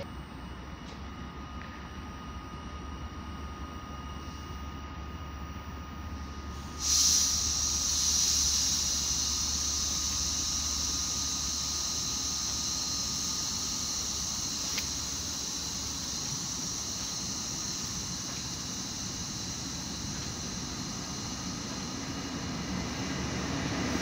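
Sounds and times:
loud hiss of air from train: 5.5 - 24.0.

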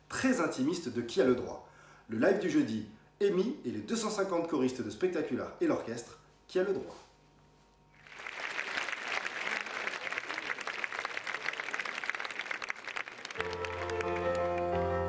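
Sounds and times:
audience applauding: 8.0 - 15.0
piano playing: 13.4 - 15.0.

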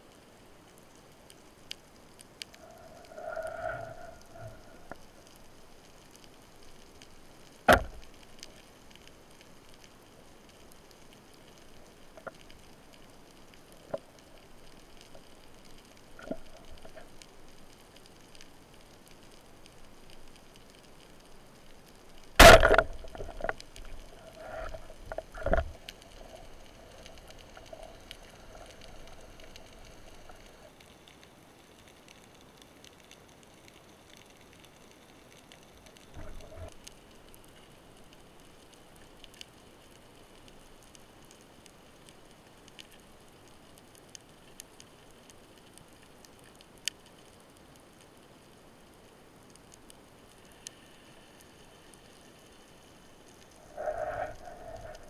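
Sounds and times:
sea hiss: 1.9 - 31.6, 48.3 - 55.0.

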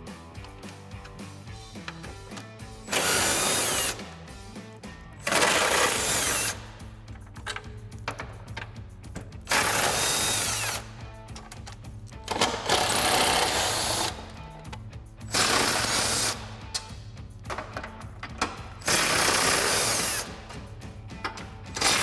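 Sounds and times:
music with steady beat: 0.0 - 22.0
impact driver bursts: 2.9 - 4.0, 5.2 - 6.7, 9.5 - 10.9, 12.3 - 14.3, 15.3 - 16.5, 18.8 - 20.4, 21.7 - 22.0.

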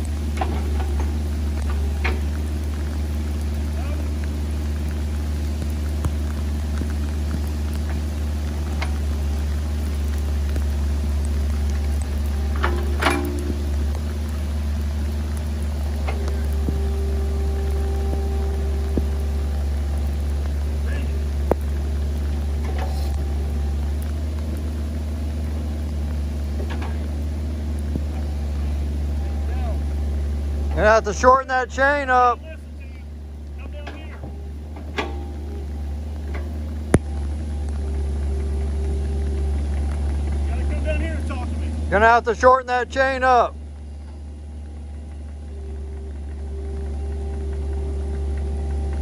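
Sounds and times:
diesel engine droning: 0.0 - 49.0
faint clanks: 11.6 - 14.1, 33.7 - 37.9.

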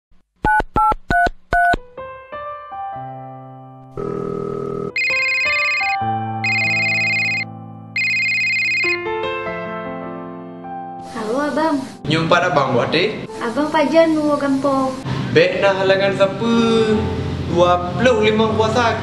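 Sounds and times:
soft electric piano music: 1.9 - 15.0
phone ringtone ringing: 4.0 - 9.0
phone keypad beeps: 5.0 - 7.4, 8.0 - 9.0.

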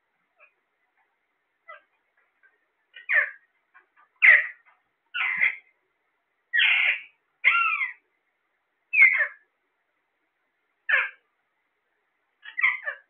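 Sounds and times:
parakeets calling harshly: 2.9 - 5.7, 6.5 - 8.0, 8.9 - 9.5, 10.9 - 11.3, 12.4 - 13.0.

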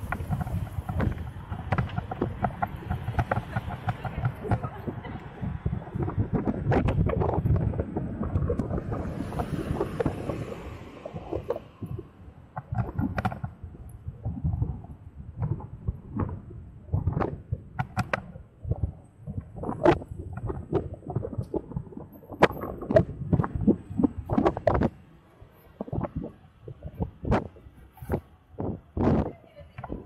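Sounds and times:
knocks and rattles: 0.0 - 10.4
scooter ride rumble: 0.0 - 30.0
wind noise: 0.0 - 30.0.

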